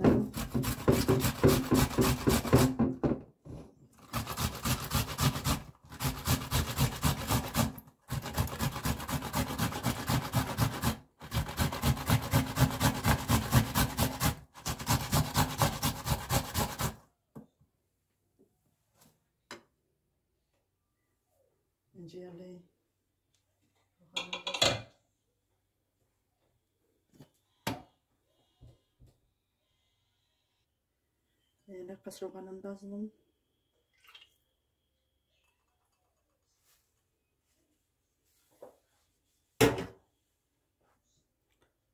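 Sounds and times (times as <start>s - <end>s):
tomatoes grated on metal grater: 0.1s - 2.8s, 4.0s - 17.0s.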